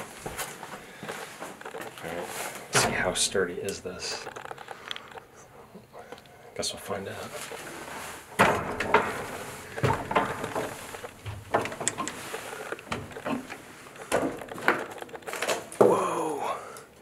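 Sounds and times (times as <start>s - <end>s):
footsteps on wooden stairs: 0.0s - 1.6s, 7.4s - 14.9s
wooden creak: 0.8s - 5.4s, 7.4s - 16.1s.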